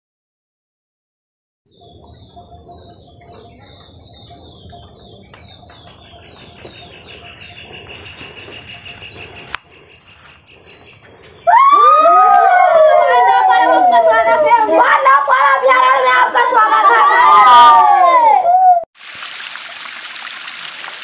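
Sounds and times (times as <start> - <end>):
insects chirring in trills: 1.7 - 16.1
boys shouting and cheering: 11.5 - 18.8.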